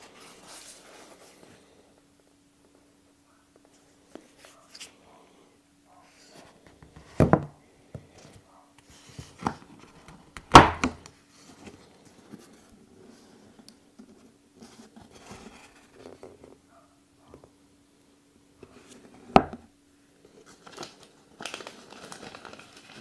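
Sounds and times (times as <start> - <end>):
paper rustling: 20.3 - 23.0.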